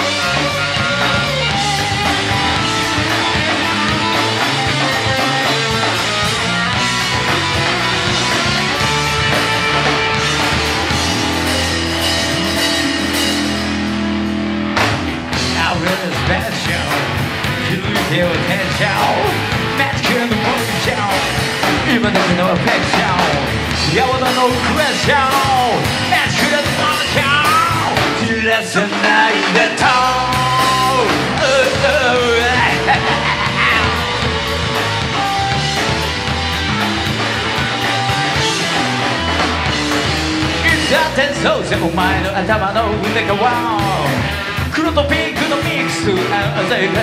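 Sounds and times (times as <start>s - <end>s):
rock band playing: 0.0s - 47.0s
man singing and shouting: 15.4s - 34.7s, 40.4s - 47.0s.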